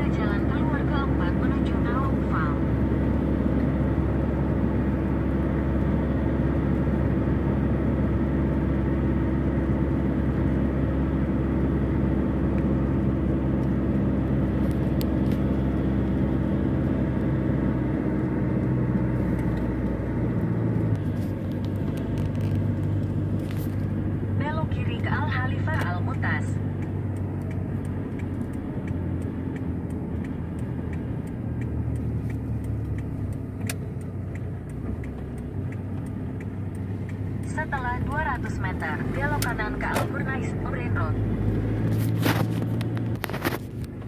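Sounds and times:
car engine and road noise: 0.0s - 44.0s.

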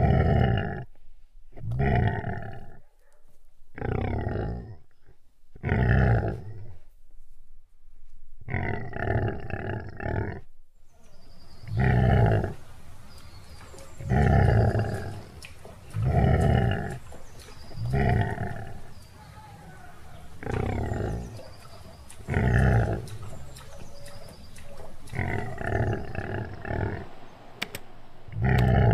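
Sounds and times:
lion roaring: 0.0s - 0.9s, 1.6s - 2.8s, 3.8s - 6.8s, 8.5s - 10.5s, 11.6s - 12.6s, 13.8s - 27.2s, 28.3s - 28.9s.

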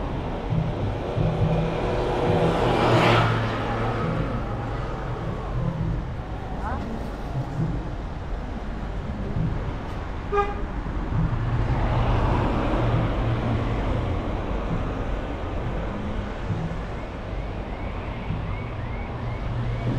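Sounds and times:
vehicle passing close: 0.0s - 8.1s
car horn toot: 10.3s - 10.7s.

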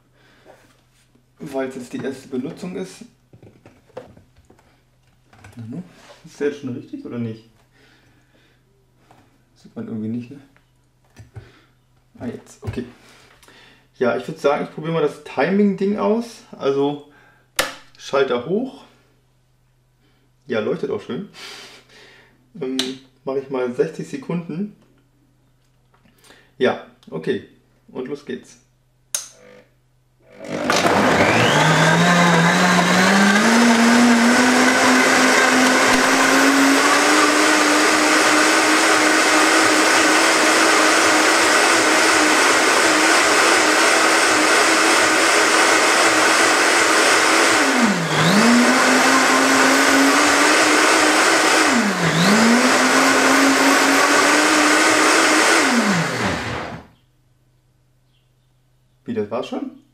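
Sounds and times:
blender motor running: 29.4s - 56.9s.

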